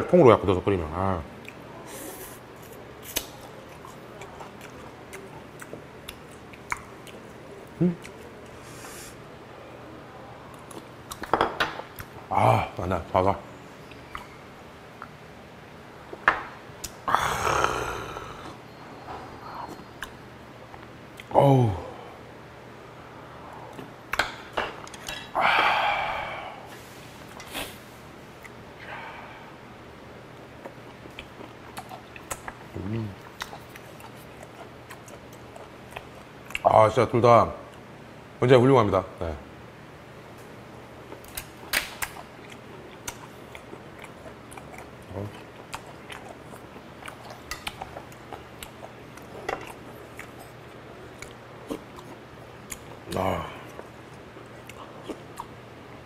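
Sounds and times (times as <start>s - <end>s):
low steady hum: 0.0s - 56.0s
mouth eating sound: 1.4s - 9.2s, 16.8s - 18.6s, 30.4s - 36.8s, 41.0s - 56.0s.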